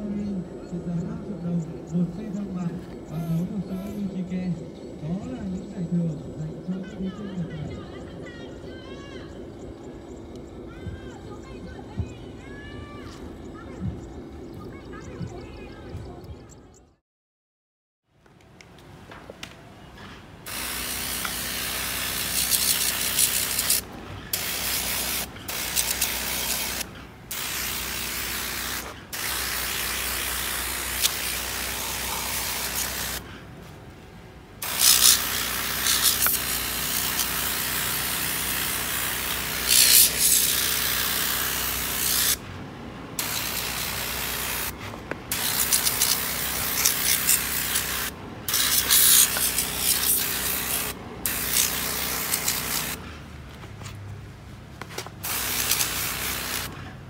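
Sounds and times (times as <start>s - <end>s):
pressure washer jet hissing: 20.5s - 33.2s, 34.6s - 42.4s, 43.2s - 53.0s, 55.2s - 56.8s
pressure washer motor humming: 20.5s - 33.2s, 34.6s - 42.4s, 43.2s - 53.0s, 55.2s - 56.8s.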